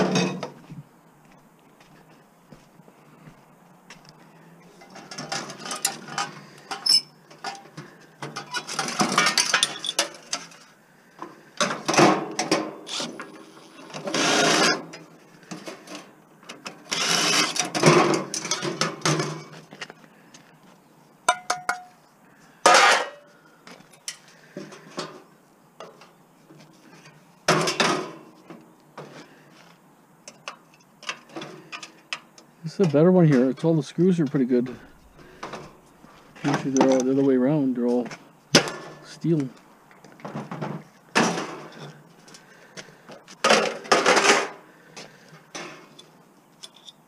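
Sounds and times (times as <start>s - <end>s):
metal parts clattering and scraping: 4.7s - 10.8s, 11.6s - 19.8s, 22.6s - 23.3s, 26.8s - 28.4s, 43.4s - 44.6s, 45.5s - 47.0s.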